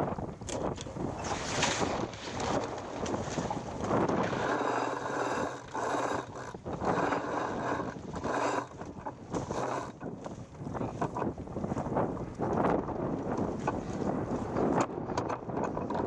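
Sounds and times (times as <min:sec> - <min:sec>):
wind on microphone: 0:00.0 - 0:16.0
winch whirring and ratcheting: 0:01.6 - 0:10.4.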